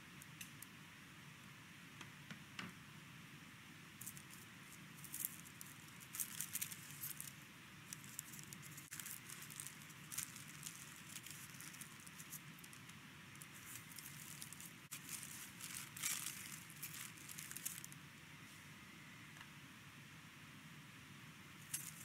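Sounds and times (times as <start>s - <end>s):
low room hum: 0.0s - 22.0s
baking paper crinkling: 4.0s - 18.0s, 21.7s - 22.0s.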